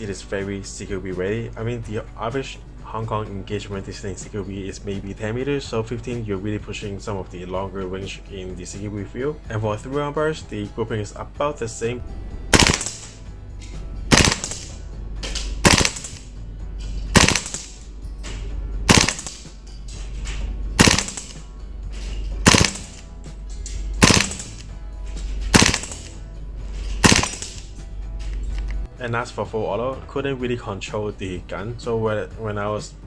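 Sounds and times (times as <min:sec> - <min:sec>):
faint background music: 0:00.0 - 0:33.0
airsoft gun burst fire: 0:12.5 - 0:13.2, 0:14.1 - 0:14.8, 0:15.6 - 0:16.2, 0:17.1 - 0:17.8, 0:18.9 - 0:19.5, 0:20.8 - 0:21.4, 0:22.4 - 0:23.0, 0:24.0 - 0:24.6, 0:25.5 - 0:26.2, 0:27.0 - 0:27.6.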